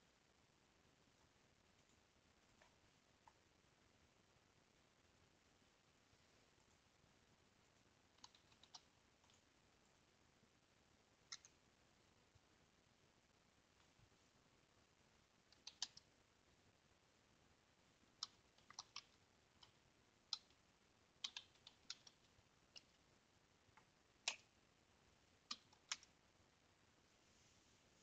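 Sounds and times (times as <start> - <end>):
faint keyboard keystrokes: 8.2 - 9.4.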